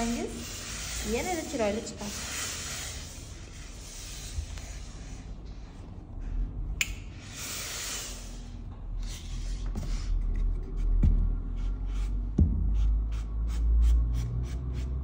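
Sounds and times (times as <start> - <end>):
steam iron hissing: 0.0 - 5.1, 7.2 - 8.6.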